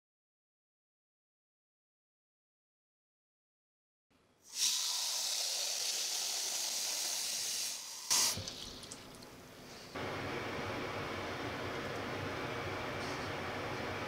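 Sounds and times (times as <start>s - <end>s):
tap water filling pot: 8.1s - 9.4s.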